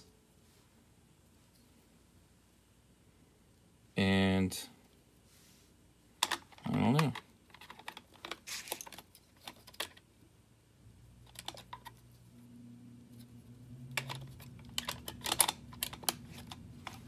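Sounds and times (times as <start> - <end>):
plastic toy parts clicking: 6.2 - 10.0, 11.2 - 12.0, 13.9 - 17.0.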